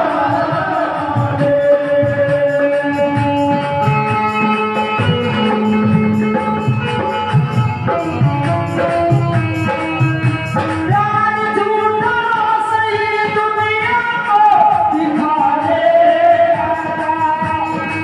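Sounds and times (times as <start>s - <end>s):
instrumental accompaniment with beat: 0.0s - 18.0s
woman singing: 10.9s - 18.0s.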